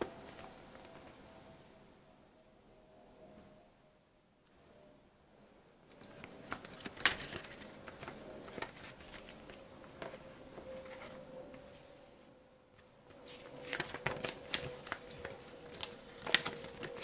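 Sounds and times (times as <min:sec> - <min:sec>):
faint steady hum: 0:00.0 - 0:17.0
paper leaflet rustling: 0:06.0 - 0:11.2, 0:12.8 - 0:17.0.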